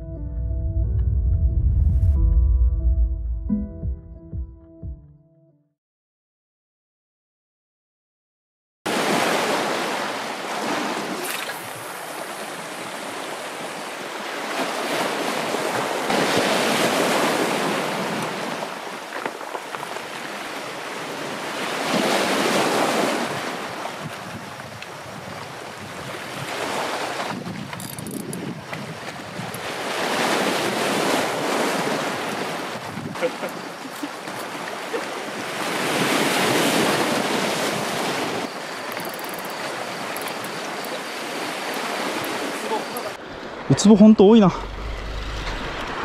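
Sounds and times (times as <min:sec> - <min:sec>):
sea waves against rocky shore: 0:08.9 - 0:46.0
wind buffeting microphone: 0:23.2 - 0:33.3.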